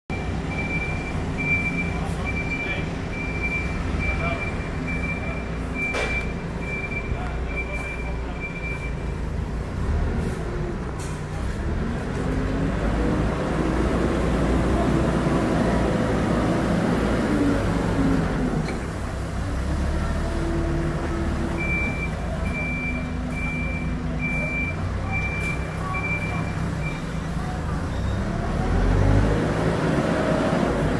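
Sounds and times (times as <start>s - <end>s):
reversing alarm beeping: 0.1s - 9.2s, 21.5s - 27.2s
diesel engine revving: 0.1s - 30.9s.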